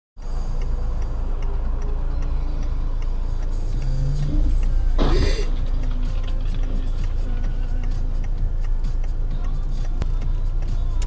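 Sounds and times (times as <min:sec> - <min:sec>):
car engine hum: 0:00.2 - 0:11.0
turn signal ticking: 0:00.2 - 0:11.0
car crash: 0:04.9 - 0:06.6.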